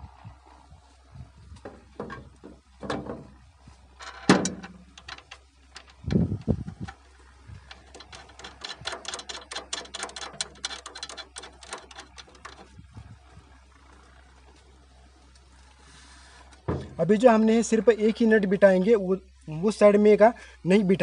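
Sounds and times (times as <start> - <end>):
metal knocks and scrapes: 1.6 - 3.4, 4.0 - 7.0, 7.6 - 12.8, 16.6 - 17.1
rapid small clicks and rattles: 4.0 - 15.7
dull thud: 16.6 - 17.1.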